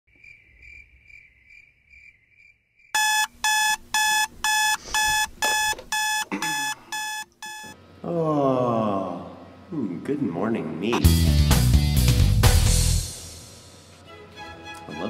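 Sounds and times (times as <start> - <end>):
alarm clock beeping: 3.0 - 7.8.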